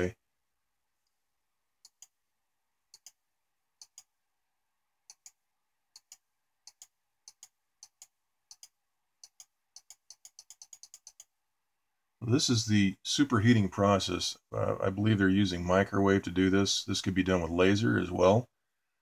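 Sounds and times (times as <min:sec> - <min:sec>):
computer mouse clicking: 0:01.8 - 0:02.2, 0:02.9 - 0:03.2, 0:03.8 - 0:04.1, 0:05.0 - 0:11.4.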